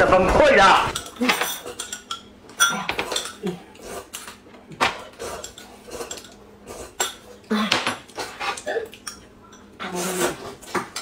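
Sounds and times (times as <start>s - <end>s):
spoons clinking against glass and tin: 1.0s - 3.4s.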